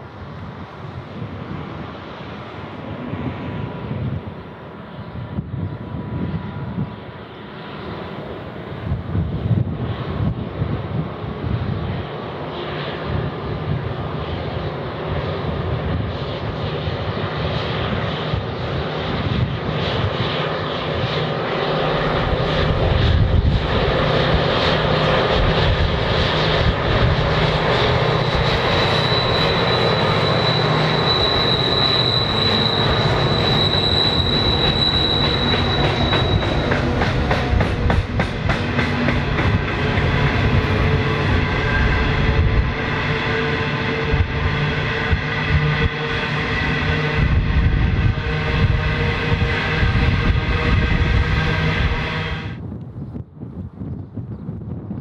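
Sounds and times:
diesel locomotive engine drone: 0:00.0 - 0:53.1
high whine: 0:19.0 - 0:52.6
train wheels clicking over track: 0:28.2 - 0:41.6.

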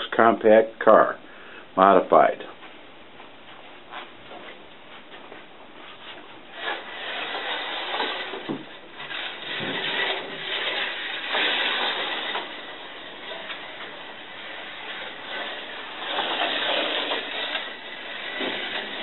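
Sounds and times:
slot car rattling: 0:06.6 - 0:19.0.

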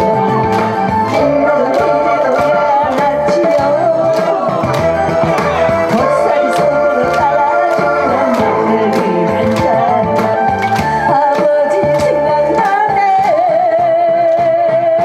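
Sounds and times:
trot music backing track: 0:00.0 - 0:15.0.

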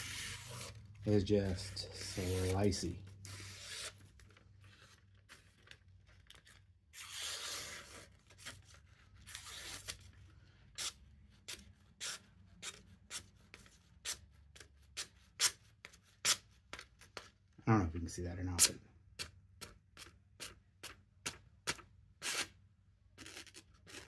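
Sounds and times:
knife slicing through paper: 0:00.0 - 0:04.1, 0:06.9 - 0:10.0.

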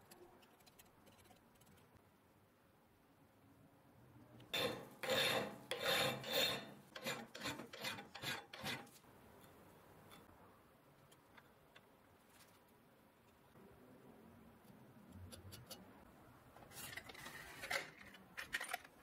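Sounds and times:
hand file rasping on metal: 0:04.5 - 0:08.9.

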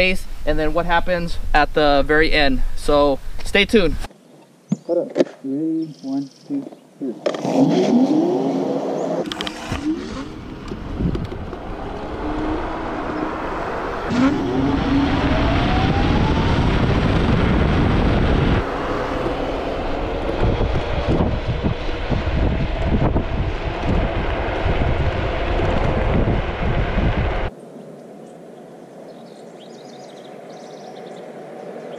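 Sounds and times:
tyre noise on asphalt: 0:07.2 - 0:27.5
electric scooter motors whining: 0:08.5 - 0:27.5, 0:29.8 - 0:31.9
wind buffeting on camera: 0:09.2 - 0:27.5.

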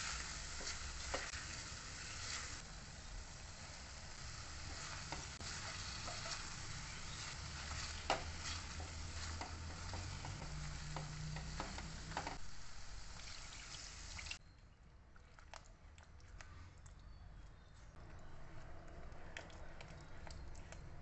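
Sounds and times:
spatula stirring and scraping: 0:00.0 - 0:02.6, 0:04.2 - 0:12.5
vegetables sizzling in a pan: 0:00.0 - 0:14.4
spatula knocking on pan: 0:08.0 - 0:12.4.

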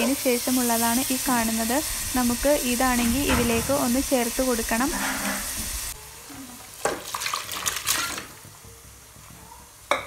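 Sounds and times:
pan sizzling: 0:00.0 - 0:06.0.

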